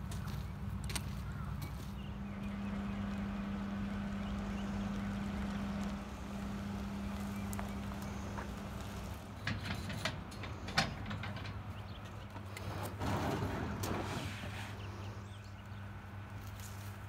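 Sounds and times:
truck engine idling: 0:00.0 - 0:17.0
kayak scraping onto carrier: 0:12.6 - 0:14.7.

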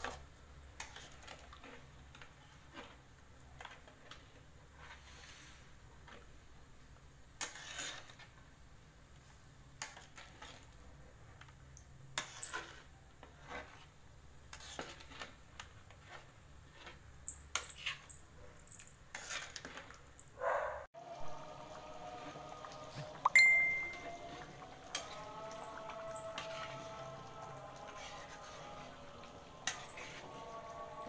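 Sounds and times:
metal ladle scraping a wok: 0:03.6 - 0:05.7, 0:07.4 - 0:08.4, 0:09.8 - 0:10.7, 0:12.1 - 0:18.1, 0:19.1 - 0:20.0, 0:21.5 - 0:31.0
background music with steady tones: 0:21.0 - 0:31.0.

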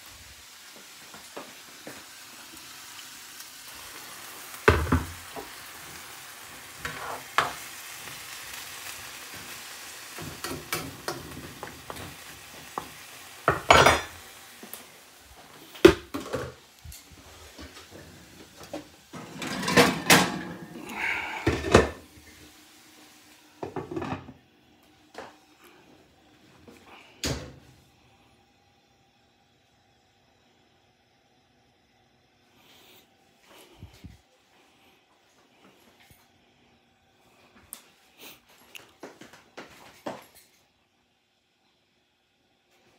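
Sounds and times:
meat sizzling in a frying pan: 0:00.0 - 0:19.2
pots and pans clattering: 0:04.6 - 0:05.5, 0:10.2 - 0:14.3, 0:15.8 - 0:16.6, 0:17.6 - 0:22.1, 0:23.6 - 0:24.4.

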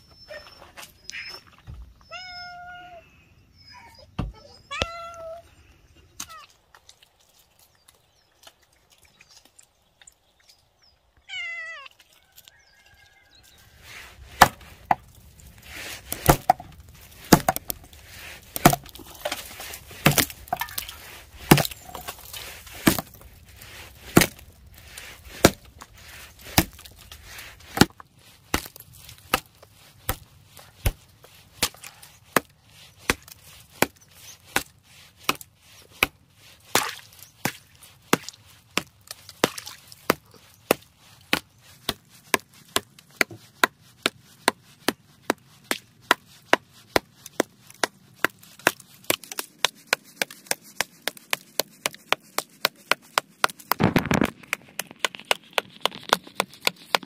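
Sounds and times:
hammer chipping ice: 0:15.7 - 0:30.2.

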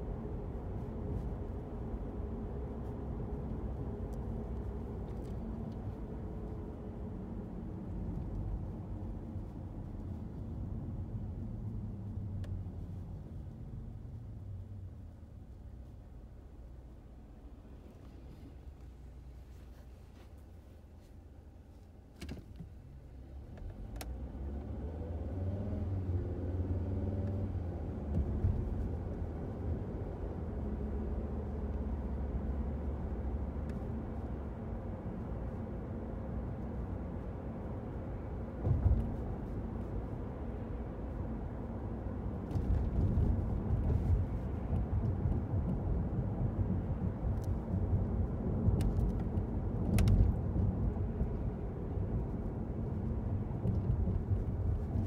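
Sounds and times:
road rumble: 0:00.0 - 0:55.0
car engine accelerating: 0:23.3 - 0:35.8
thump: 0:38.6 - 0:39.2.

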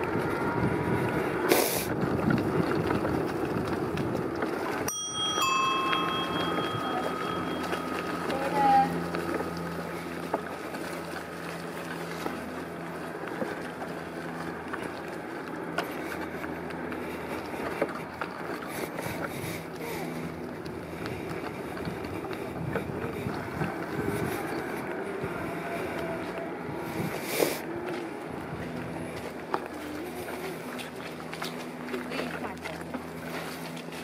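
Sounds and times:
wind on microphone: 0:00.0 - 0:04.9, 0:21.2 - 0:25.6, 0:26.6 - 0:27.2
outdoor rumble: 0:00.0 - 0:34.0.

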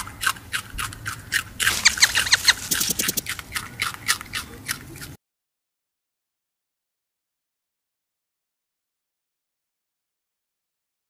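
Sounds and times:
rabbit crunching food: 0:00.0 - 0:05.2.

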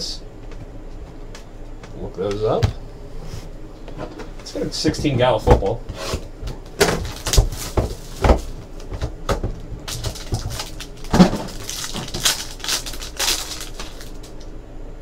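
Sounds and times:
foil pack crinkling: 0:06.8 - 0:08.6, 0:09.9 - 0:14.5.

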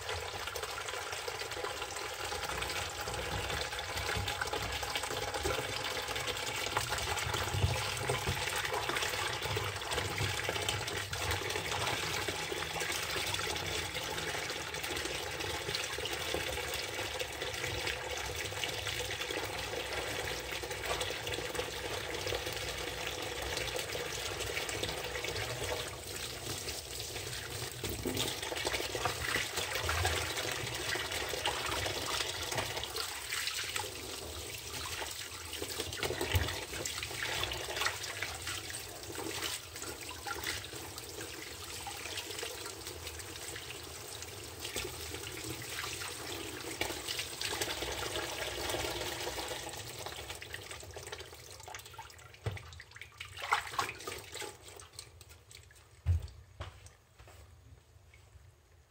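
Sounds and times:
tap water running into basin: 0:00.0 - 0:57.0
water dripping: 0:51.0 - 0:57.0.

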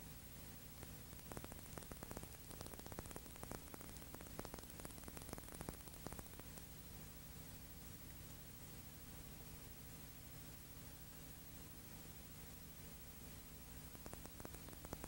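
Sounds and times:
recording hiss and hum: 0:00.0 - 0:15.0
light crackling clicks: 0:00.8 - 0:06.7, 0:13.8 - 0:15.0.

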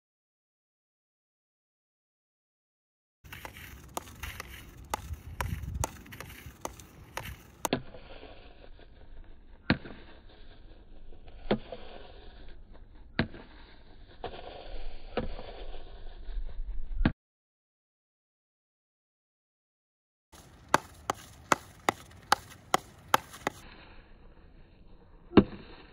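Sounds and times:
hockey stick tapping ball: 0:03.3 - 0:07.8, 0:09.7 - 0:10.0, 0:13.2 - 0:13.4, 0:20.4 - 0:23.6.

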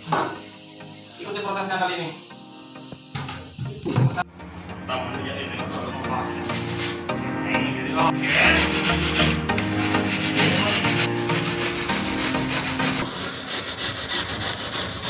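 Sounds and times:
foam being sanded: 0:08.2 - 0:15.0.

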